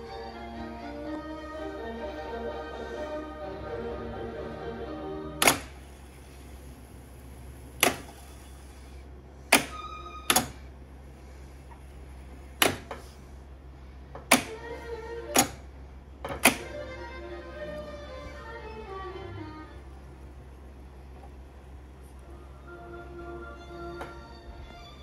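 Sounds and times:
low hum: 0.0s - 25.0s
tape deck buttons clunking: 5.4s - 5.8s, 7.7s - 8.2s, 9.5s - 10.7s, 12.6s - 13.1s, 14.2s - 15.7s, 16.3s - 16.8s.

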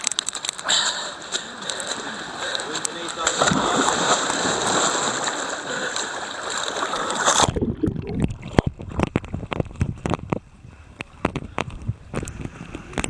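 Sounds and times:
water splashing and rushing: 0.0s - 10.4s.

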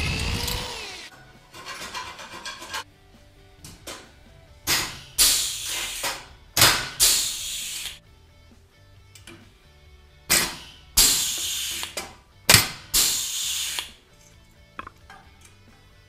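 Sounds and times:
air hissing: 4.7s - 8.0s, 10.3s - 12.1s, 12.8s - 14.0s
rivet gun snap: 10.3s - 14.0s.

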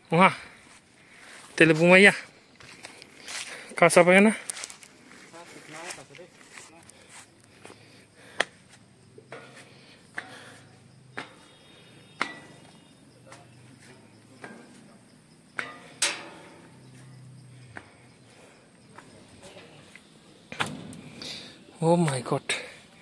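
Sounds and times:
sharp knocks: 11.1s - 13.4s, 14.3s - 18.0s, 20.5s - 22.7s.

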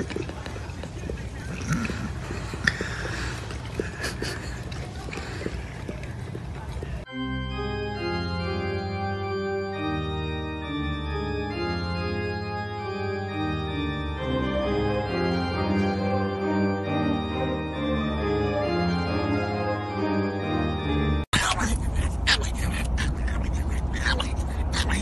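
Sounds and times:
organ chords: 7.1s - 21.3s.

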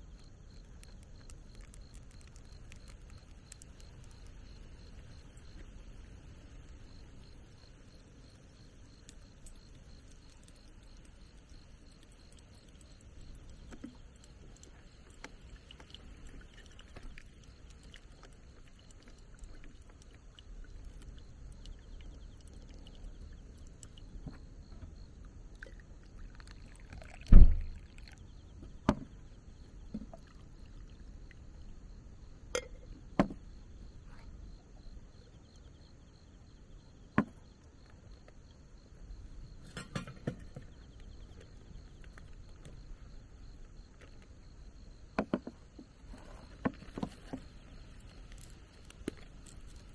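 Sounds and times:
insects chirring: 0.0s - 49.9s
coffee pouring into a mug: 25.9s - 28.2s
cups knocking on a table: 45.2s - 45.6s.

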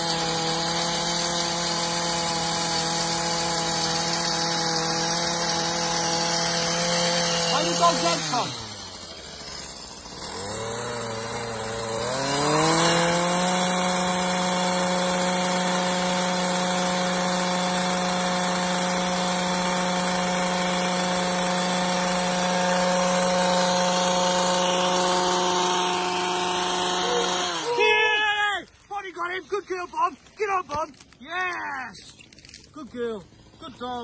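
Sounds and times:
small two-stroke engine revving: 0.0s - 28.4s, 32.0s - 34.0s.

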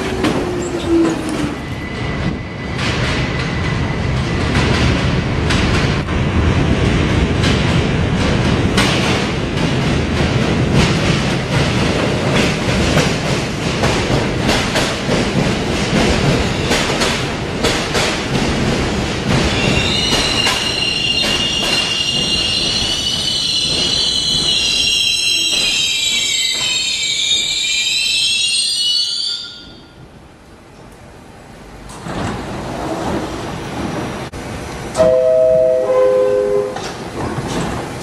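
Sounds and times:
subway train wheels clicking: 0.0s - 38.0s.

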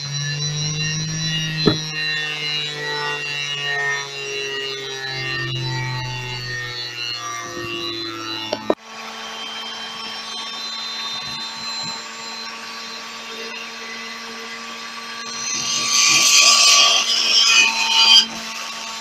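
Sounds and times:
washing machine motor whine: 0.0s - 18.2s.

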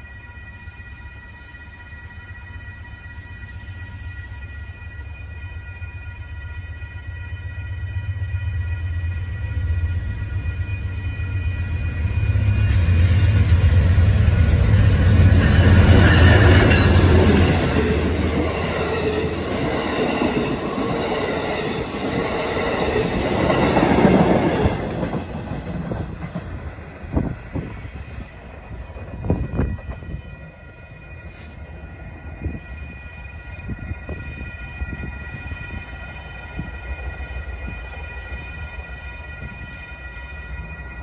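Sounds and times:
diesel locomotive engine hum: 0.0s - 41.0s
train wheels rumbling on rails: 7.5s - 41.0s
crossing signal ringing: 14.8s - 25.0s.

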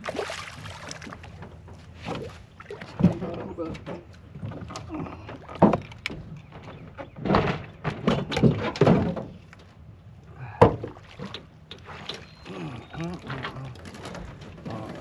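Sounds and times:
landing net knocking and clattering: 5.6s - 9.4s.

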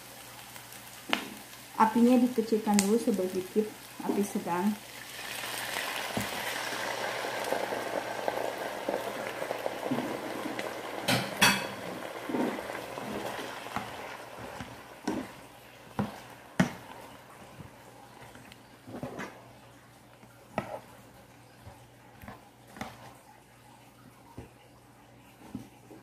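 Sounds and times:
sauce sizzling in a hot pan: 0.0s - 18.8s
spatula knocking on a pan: 15.9s - 16.9s.

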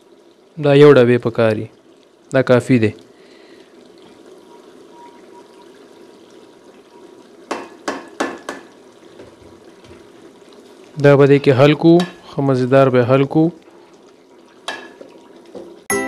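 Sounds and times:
gravy bubbling in a pan: 0.0s - 15.9s
quick knocks against a pan: 7.5s - 9.3s.

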